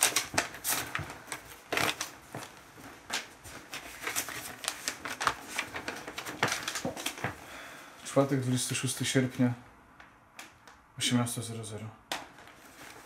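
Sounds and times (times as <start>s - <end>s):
paper rustling and crackling: 0.0s - 7.6s, 12.1s - 13.0s.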